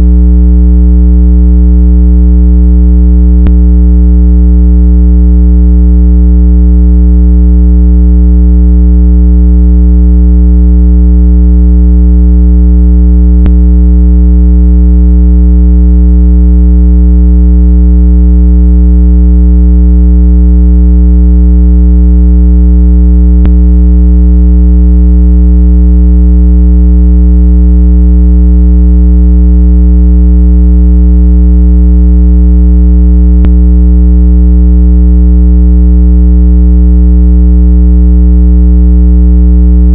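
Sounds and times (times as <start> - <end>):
loud low buzzing tone: 0.0 - 0.6, 3.3 - 5.3, 13.3 - 14.1, 23.4 - 23.9, 33.4 - 33.7.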